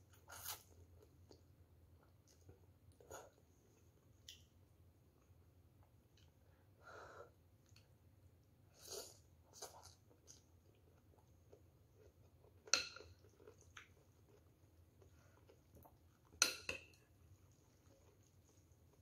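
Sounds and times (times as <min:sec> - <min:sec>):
faint chewing: 0:08.7 - 0:19.0.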